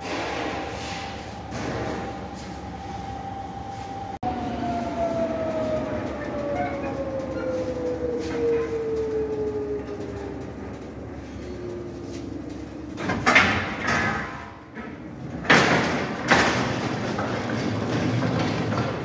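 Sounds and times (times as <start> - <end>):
oven hum: 0.0 - 19.0
metal trolley rack rattling: 6.4 - 19.0.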